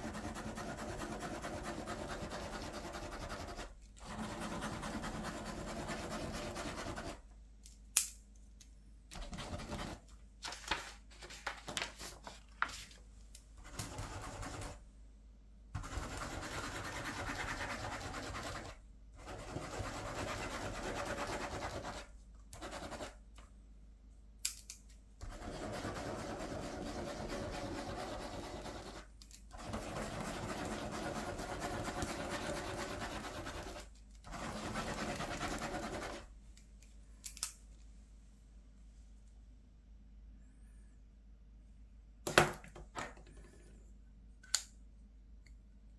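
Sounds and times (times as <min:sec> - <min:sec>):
pen scribbling on paper: 0:00.0 - 0:07.2, 0:15.8 - 0:23.2, 0:25.2 - 0:36.2.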